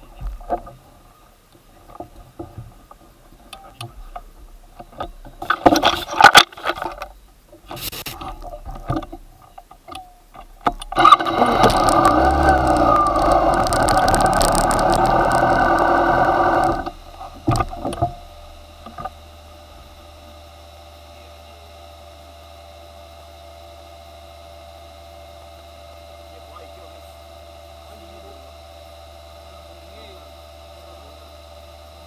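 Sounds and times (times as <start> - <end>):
faint steady hum: 0.0 - 32.0
motorcycle engine running: 10.8 - 32.0.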